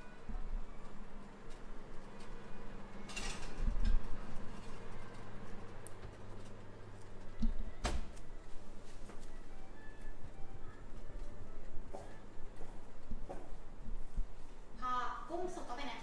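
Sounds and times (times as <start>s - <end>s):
ceramic dish scraping on wire rack: 3.0s - 4.0s.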